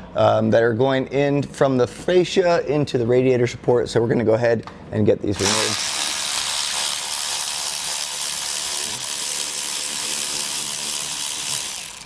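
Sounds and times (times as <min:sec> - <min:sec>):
cordless power tool spinning: 0:05.4 - 0:12.0.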